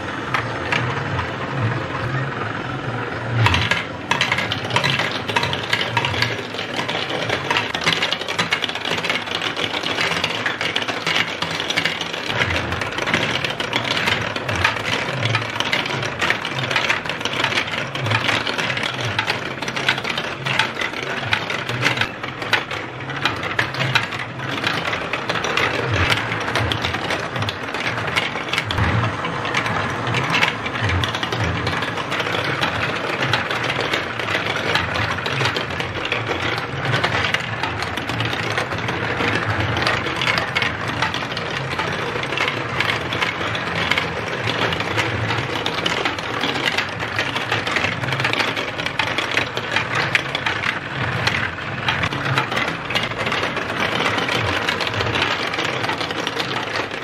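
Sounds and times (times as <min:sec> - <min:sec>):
motorized elevators whirring: 0:00.0 - 0:57.0
plastic balls clattering on tracks: 0:00.0 - 0:57.0.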